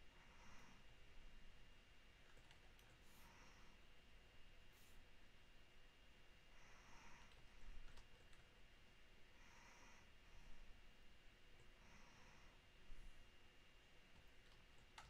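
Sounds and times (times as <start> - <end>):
person breathing softly: 0.0 - 1.2, 2.8 - 4.0, 6.4 - 8.0, 9.2 - 10.9, 11.6 - 13.3.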